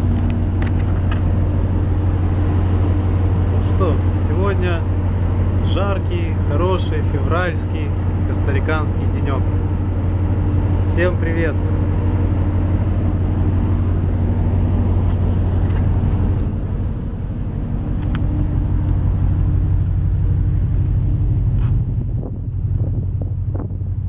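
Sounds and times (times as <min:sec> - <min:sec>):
wind buffeting microphone: 0:11.6 - 0:24.0.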